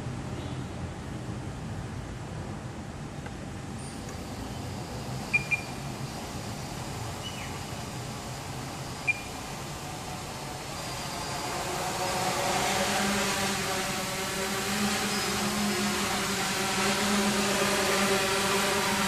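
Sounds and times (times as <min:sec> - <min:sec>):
background hum: 0:03.4 - 0:19.0
drone motors whirring: 0:03.7 - 0:19.0
short high electronic beeps: 0:05.2 - 0:05.8, 0:09.0 - 0:09.4.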